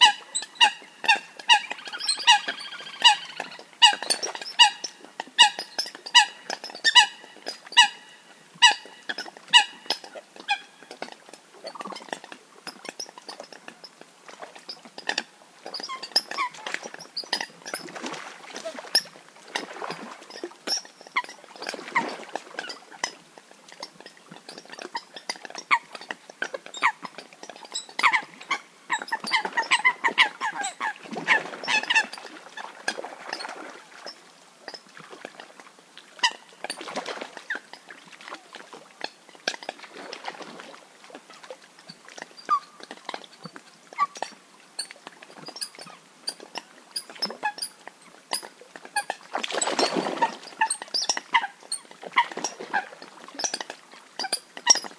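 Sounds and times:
coots calling: 0:00.0 - 0:04.8.

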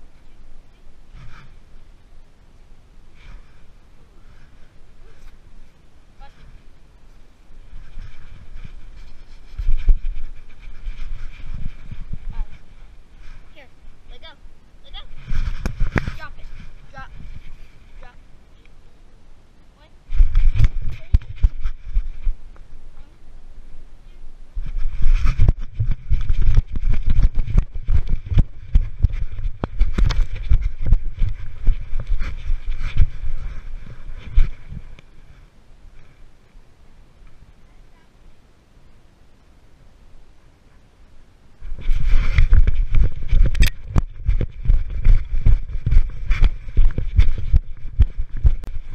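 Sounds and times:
thumps and rubbing on microphone: 0:01.1 - 0:01.7, 0:03.1 - 0:18.2, 0:20.1 - 0:23.1, 0:24.1 - 0:36.2, 0:41.6 - 0:48.9.

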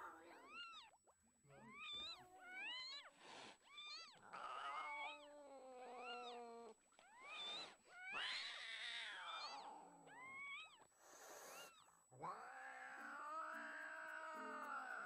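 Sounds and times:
cat meowing: 0:11.5 - 0:15.0.

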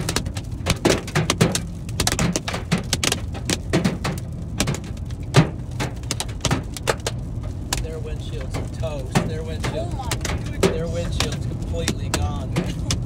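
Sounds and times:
car driving low rumble: 0:00.0 - 0:13.0
raindrops ticking on car windshield: 0:00.0 - 0:13.0.

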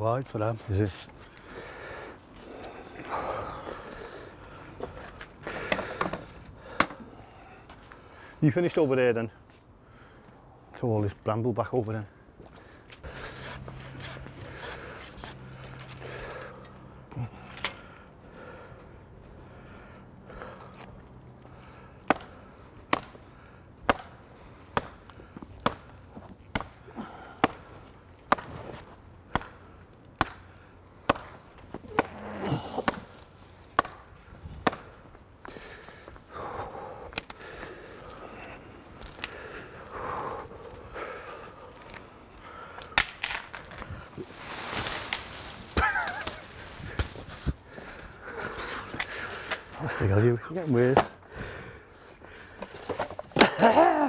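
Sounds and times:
hand tool chopping branches: 0:22.0 - 0:23.2, 0:23.9 - 0:27.7, 0:28.3 - 0:35.0, 0:42.8 - 0:47.6
leaves and twigs rustling: 0:37.3 - 0:47.8.

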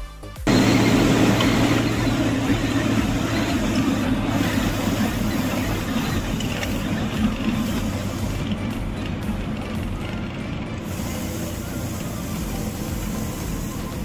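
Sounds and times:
bus engine hum: 0:00.4 - 0:14.0
road and wind noise: 0:00.5 - 0:14.0.

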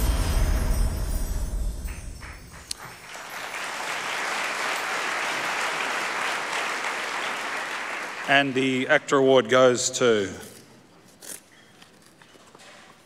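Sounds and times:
audience applause: 0:01.8 - 0:08.9.

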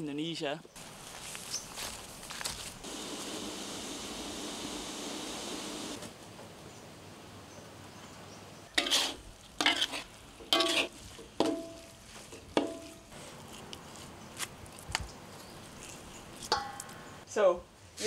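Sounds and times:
metal spoon scraping a wok: 0:08.8 - 0:11.7.

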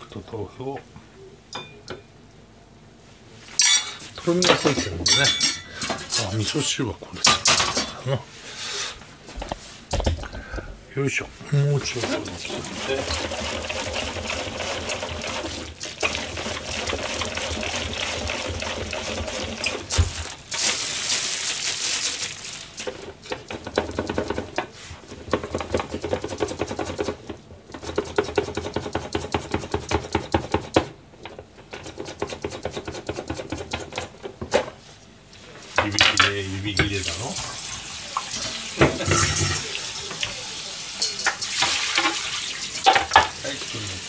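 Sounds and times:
cabbage rasping on a slicer blade: 0:11.8 - 0:15.7.

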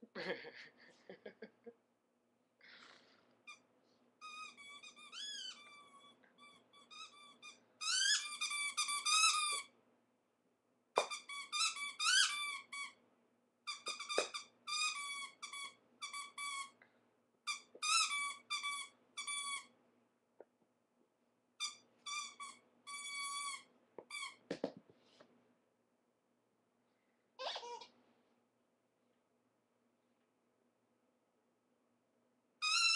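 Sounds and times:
squeaky dog toy squeaking: 0:04.2 - 0:09.7, 0:11.0 - 0:13.0, 0:13.7 - 0:16.8, 0:17.4 - 0:19.7, 0:21.6 - 0:24.4, 0:27.4 - 0:27.9, 0:32.6 - 0:32.9.

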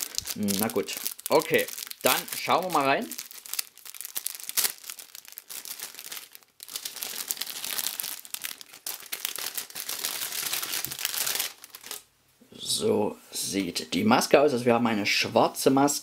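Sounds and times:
plastic bag crinkling: 0:00.0 - 0:12.1.

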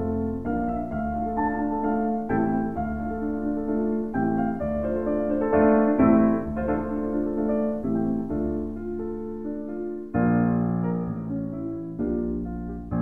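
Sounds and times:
gentle piano music: 0:00.0 - 0:13.0.

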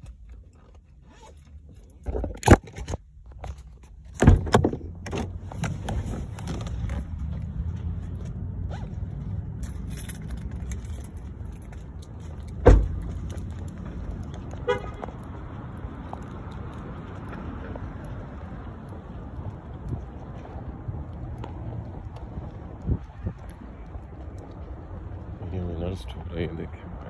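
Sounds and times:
outdoor noise: 0:00.0 - 0:27.0
car door opening clicks: 0:04.1 - 0:07.0, 0:12.5 - 0:13.2
car door slamming: 0:04.2 - 0:05.4, 0:12.6 - 0:13.2
car horn chirp: 0:14.6 - 0:15.2.

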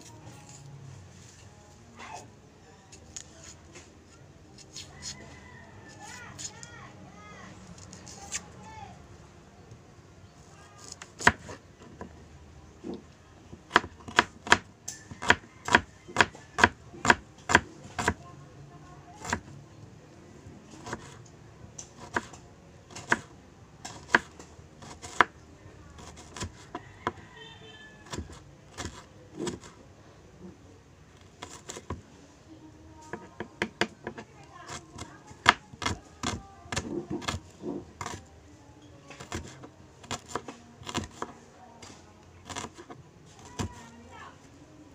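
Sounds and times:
knife chopping on cutting board: 0:42.5 - 0:42.9.

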